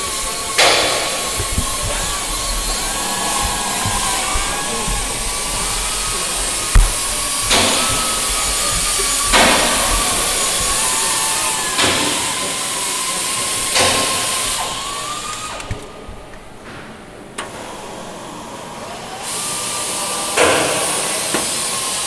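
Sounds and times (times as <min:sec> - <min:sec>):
pneumatic air drill: 0:00.0 - 0:12.7.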